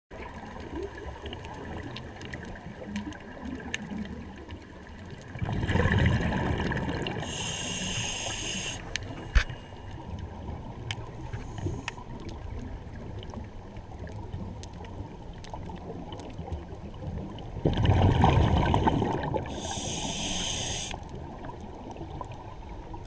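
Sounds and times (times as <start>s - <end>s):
exhaled bubbles rumbling underwater: 0.1s - 23.0s
hiss of inhalation: 7.2s - 9.9s, 11.3s - 12.0s, 18.9s - 21.0s
faint clicks: 7.8s - 12.4s.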